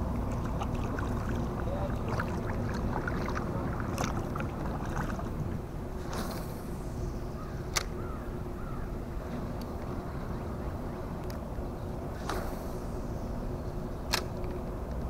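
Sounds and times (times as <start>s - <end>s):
soft paddle splashes: 0.0s - 7.0s, 12.1s - 13.4s
steady low rumble: 0.0s - 15.0s.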